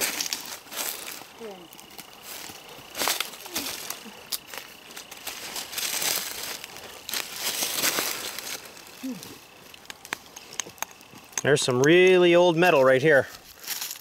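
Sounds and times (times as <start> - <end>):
dry leaves rustling and crackling: 0.0 - 14.0.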